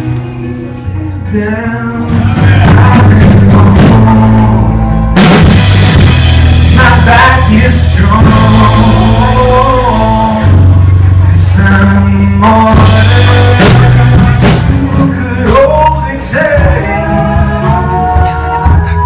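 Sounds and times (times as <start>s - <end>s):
man singing: 0.0s - 5.2s, 6.6s - 19.0s
live rock band playing: 0.0s - 19.0s
big drum hit: 5.2s - 9.8s.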